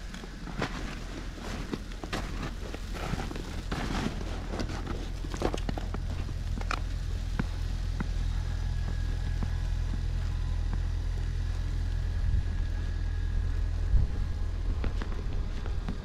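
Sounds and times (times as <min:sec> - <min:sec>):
faint footsteps in snow: 0:00.0 - 0:16.0
wind buffeting microphone: 0:12.1 - 0:16.0.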